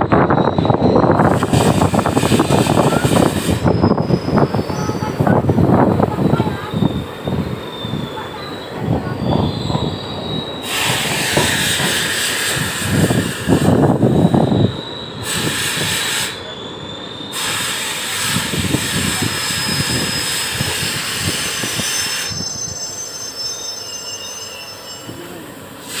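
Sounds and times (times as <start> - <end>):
high wheel squeal: 0.0 - 26.0
passing train rushing noise: 0.0 - 26.0
train wheels clattering on rails: 0.7 - 14.4.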